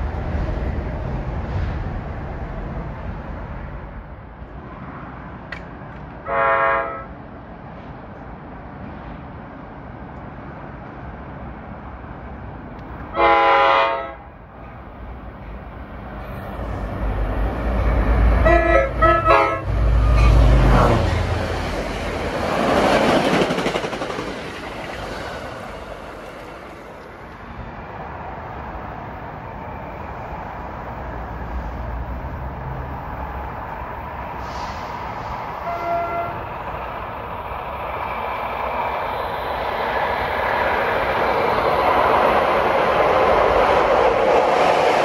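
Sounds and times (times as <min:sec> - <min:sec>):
train passing with wheel noise: 0:00.0 - 0:45.0
train horn blasts: 0:06.2 - 0:07.2, 0:13.1 - 0:14.3, 0:18.4 - 0:21.2, 0:35.6 - 0:36.5.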